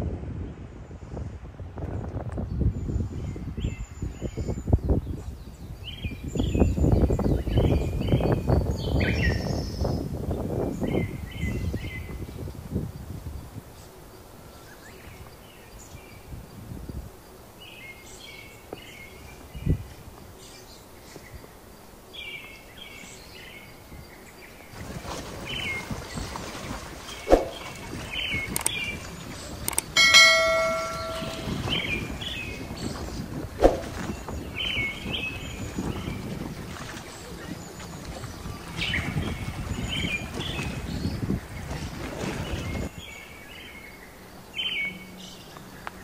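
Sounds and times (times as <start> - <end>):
small birds chirping: 27.0 - 41.7
bell ringing: 29.9 - 32.0
sharp knocks: 30.0 - 31.9.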